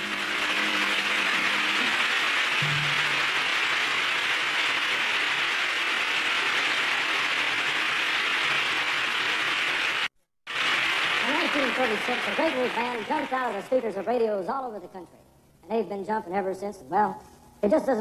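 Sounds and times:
audience applauding: 0.0s - 14.2s.

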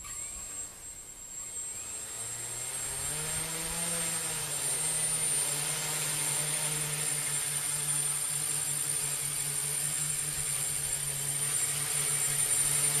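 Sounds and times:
electric motors whining: 0.0s - 13.0s
low propeller hum: 0.0s - 13.0s.

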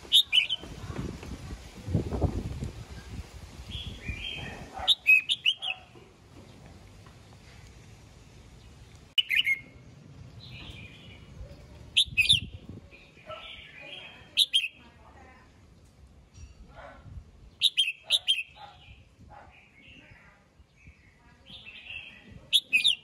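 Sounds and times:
bulbul singing: 0.0s - 0.8s, 3.6s - 5.9s, 9.2s - 15.0s, 17.5s - 19.0s, 20.8s - 23.0s
soft bird warbling: 0.1s - 0.7s.

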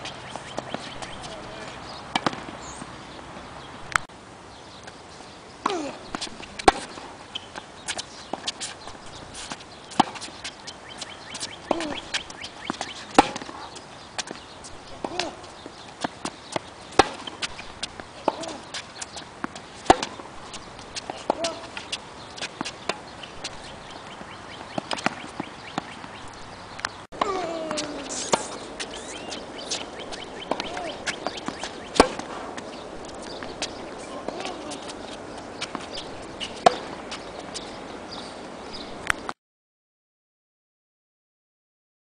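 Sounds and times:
tennis balls struck by rackets: 0.0s - 3.2s, 3.9s - 4.1s, 5.6s - 38.2s.

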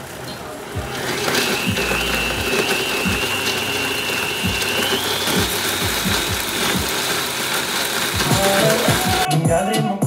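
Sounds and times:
blender motor whirring: 0.0s - 9.3s.

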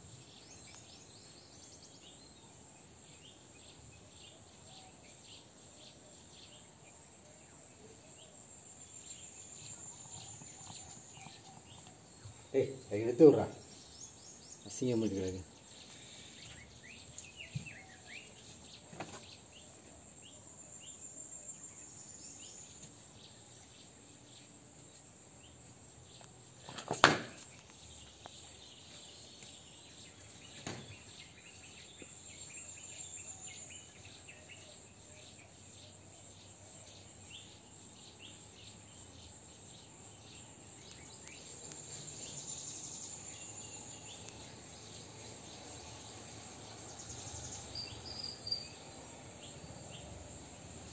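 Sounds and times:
insects trilling: 0.0s - 50.9s.

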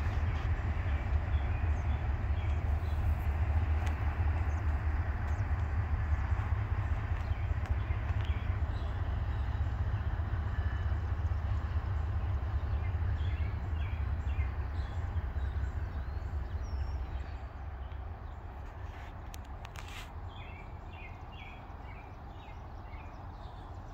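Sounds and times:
freight train rumble: 0.0s - 23.9s.

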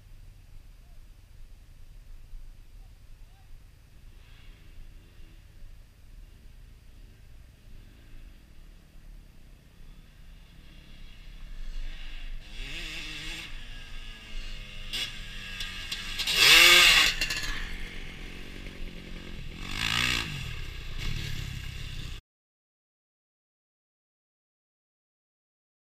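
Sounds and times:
dirt bikes revving past: 4.0s - 22.2s.

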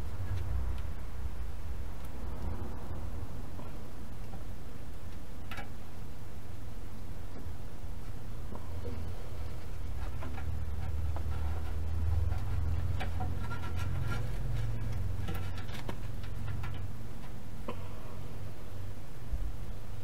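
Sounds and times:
low steady rumble: 0.0s - 20.0s.

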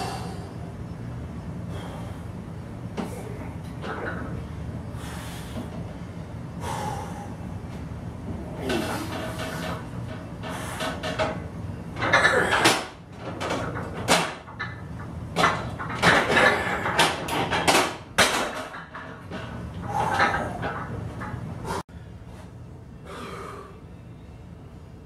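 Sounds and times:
person breathing forcefully: 0.0s - 0.6s, 6.6s - 7.5s
metal plates knocking and clanking: 12.0s - 21.5s.

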